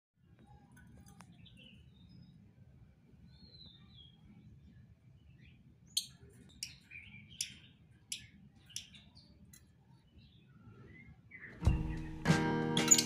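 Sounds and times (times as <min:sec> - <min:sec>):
lovebirds chirping: 0:03.2 - 0:13.0.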